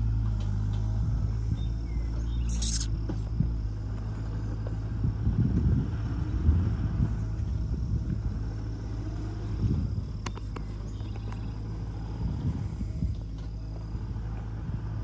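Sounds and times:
excavator diesel engine rumbling: 0.0s - 15.0s
sharp clicks: 2.5s - 2.9s, 10.2s - 11.5s.

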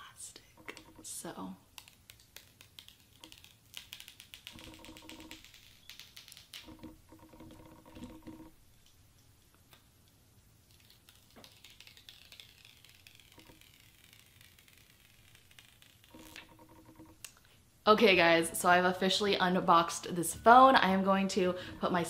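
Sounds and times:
plastic film crackling: 0.6s - 7.8s, 10.6s - 17.1s
plastic film squeaks: 1.8s - 6.8s, 10.8s - 17.1s.

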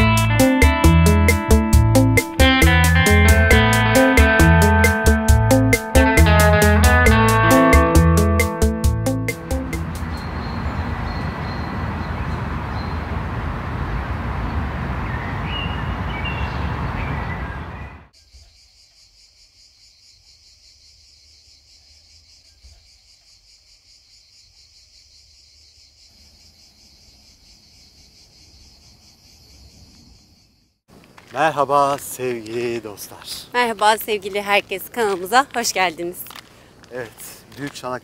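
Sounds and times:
high insect chorus: 18.1s - 33.5s.

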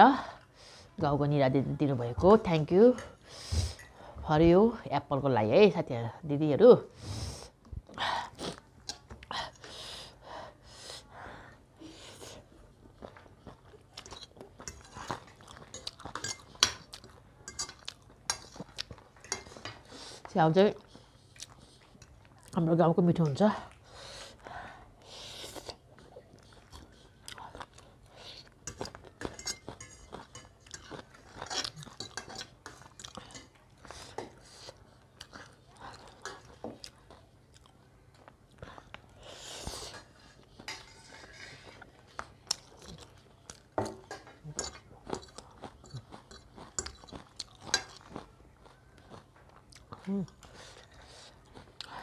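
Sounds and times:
person chewing noodles: 11.5s - 20.2s, 20.8s - 22.6s, 23.7s - 52.0s
cutlery scraping a ceramic plate: 28.7s - 33.5s, 39.9s - 41.8s.

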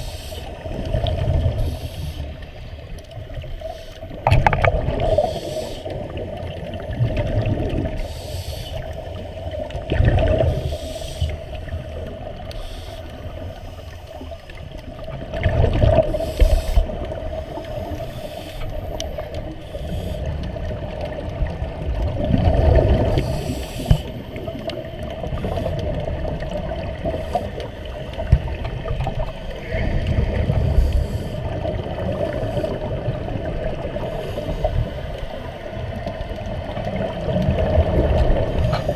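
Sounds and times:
underwater hum: 0.0s - 38.9s
water noise: 0.0s - 38.9s.

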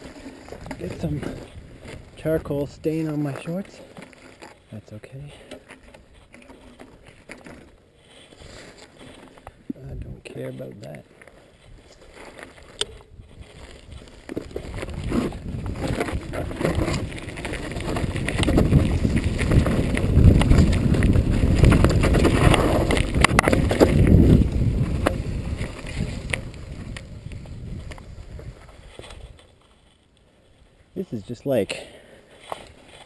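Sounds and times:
bike tyre noise: 0.0s - 33.0s
bike clattering over bumps: 12.2s - 29.4s
wind rushing over microphone: 13.2s - 29.4s.

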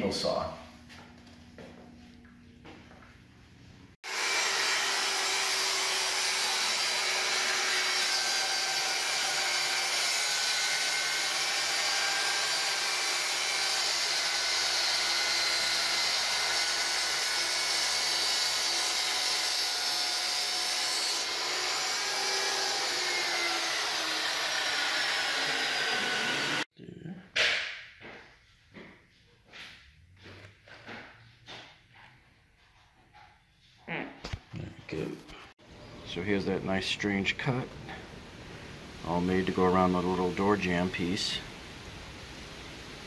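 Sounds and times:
table saw whining: 4.0s - 26.7s.

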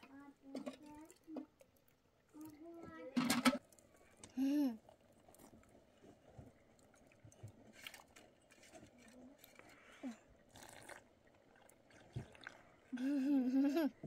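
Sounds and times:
child chewing food: 3.6s - 14.0s.

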